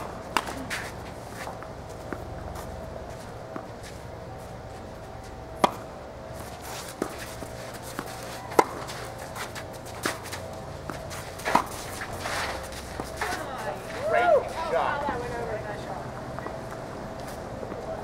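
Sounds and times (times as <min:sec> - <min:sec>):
rackets striking tennis ball: 0:00.0 - 0:04.0, 0:05.3 - 0:14.0.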